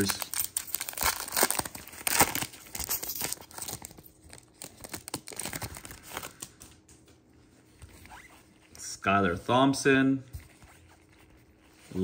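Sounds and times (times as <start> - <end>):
foil wrapper tearing and crinkling: 0.0 - 6.4.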